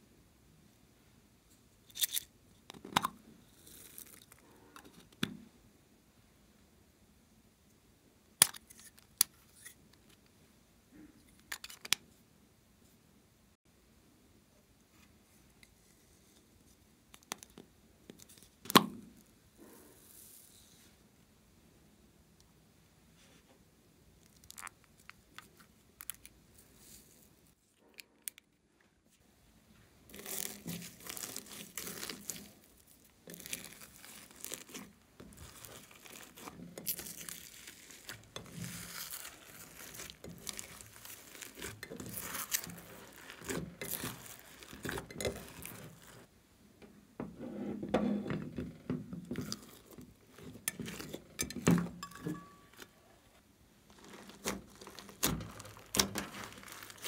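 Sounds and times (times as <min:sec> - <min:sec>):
slime squishing and crackling: 0:30.1 - 0:46.3, 0:49.3 - 0:51.3, 0:53.9 - 0:57.0.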